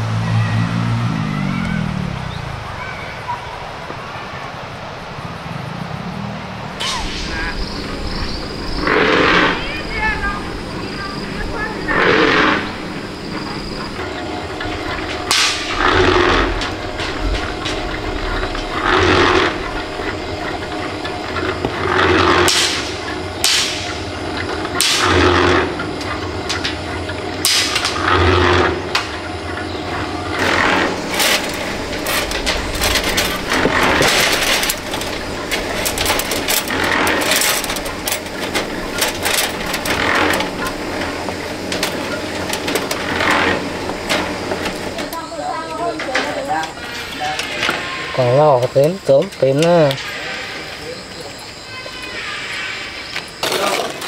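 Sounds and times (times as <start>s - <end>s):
tool knocks and clatter: 30.4s - 45.1s.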